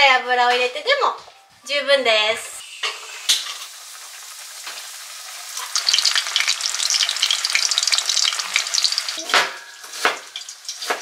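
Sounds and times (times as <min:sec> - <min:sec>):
fish deep-frying in oil: 0:02.6 - 0:11.0.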